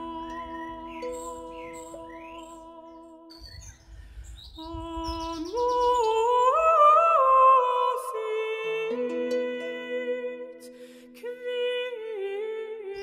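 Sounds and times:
slow melody: 0.0s - 4.0s, 5.8s - 13.0s
bird chirps: 0.1s - 6.7s.

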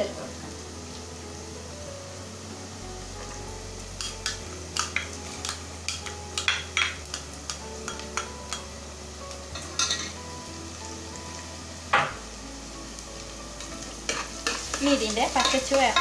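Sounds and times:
spoon tapping metal pot: 4.0s - 8.6s, 14.1s - 16.0s.

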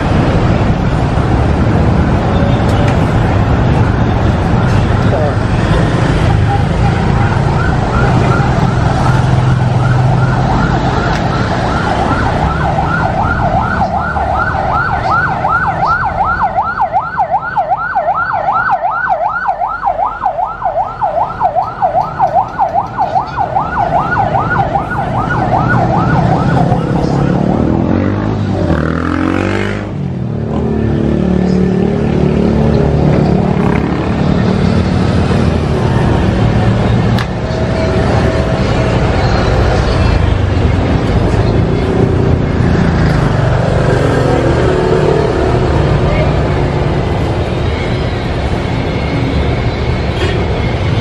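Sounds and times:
street traffic: 0.0s - 51.0s
siren yelping: 6.1s - 28.1s.

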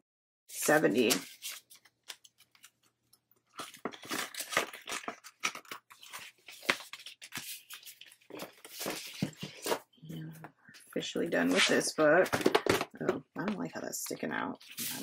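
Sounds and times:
paper rustling and crinkling: 0.6s - 9.9s, 14.0s - 15.0s.

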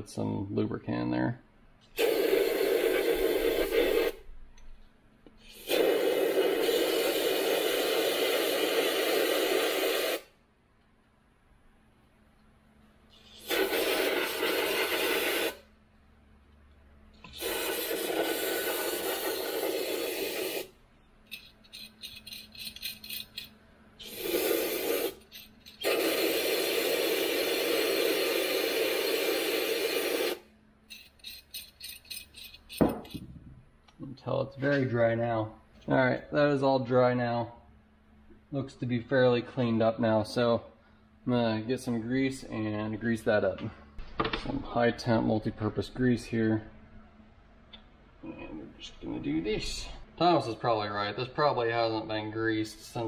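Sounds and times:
aerosol spray hissing: 2.0s - 4.2s, 5.4s - 10.3s, 13.1s - 15.7s, 17.2s - 20.8s, 21.4s - 30.5s.

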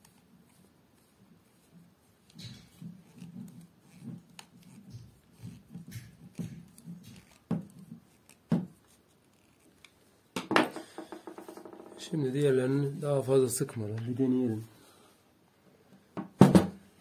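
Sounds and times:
scraping and rubbing: 0.0s - 10.0s
screwdriver tightening screws: 2.2s - 9.8s
knock: 10.4s - 12.0s, 16.2s - 16.8s.

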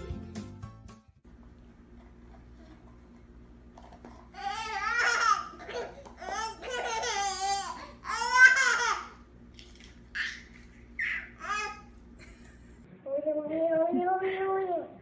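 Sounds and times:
baby giggling: 4.4s - 9.2s
baby laughing: 4.4s - 9.2s, 10.1s - 12.0s.

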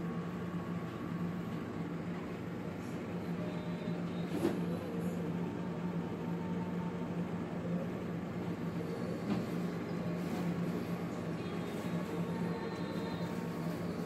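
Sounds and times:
low background hum: 0.0s - 14.0s.

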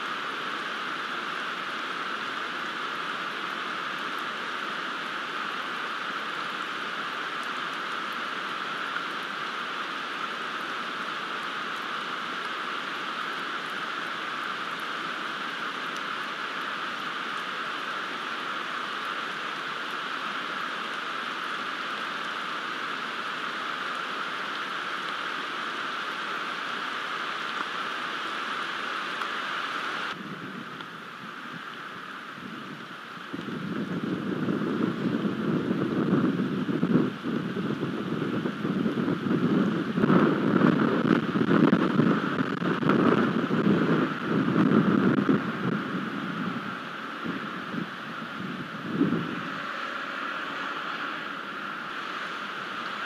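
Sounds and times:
heavy rain: 0.0s - 53.0s
raindrop ticks: 6.4s - 18.0s, 29.0s - 29.4s.

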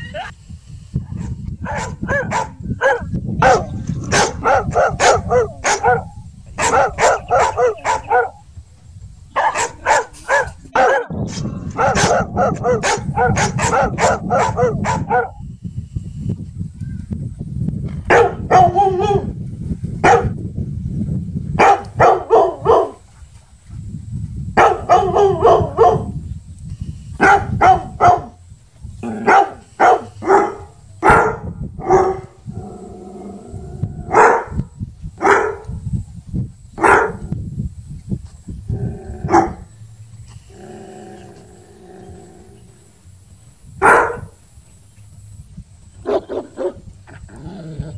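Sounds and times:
dog barking: 1.2s - 8.4s, 9.4s - 15.4s, 18.1s - 19.3s, 20.0s - 20.4s, 21.6s - 23.0s, 24.6s - 26.2s, 27.2s - 28.4s, 29.2s - 32.3s, 34.1s - 34.6s, 35.2s - 35.8s, 36.8s - 37.2s, 39.3s - 39.6s, 43.8s - 44.3s, 46.0s - 46.8s.

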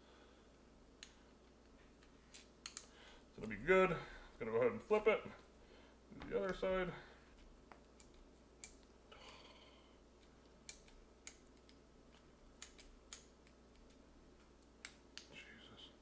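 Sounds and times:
faint sharp clicks and taps: 10.2s - 15.4s.

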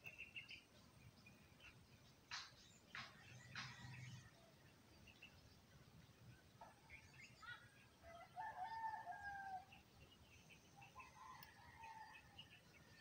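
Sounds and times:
small birds chirping: 0.0s - 13.0s
rooster crowing: 8.0s - 9.7s.

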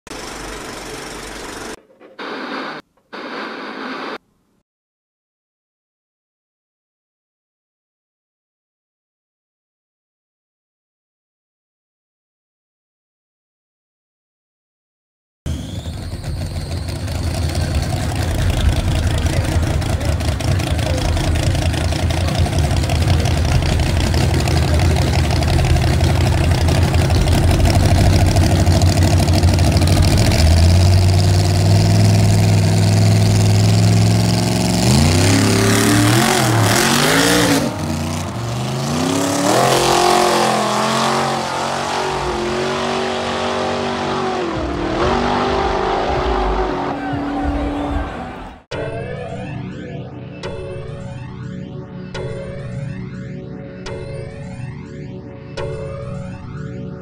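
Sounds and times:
car engines idling and revving: 0.1s - 2.8s, 15.5s - 48.6s
cars accelerating through gears: 15.5s - 48.6s.

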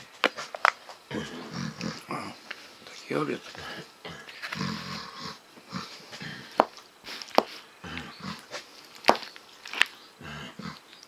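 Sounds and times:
person eating and mumbling: 1.1s - 8.6s.

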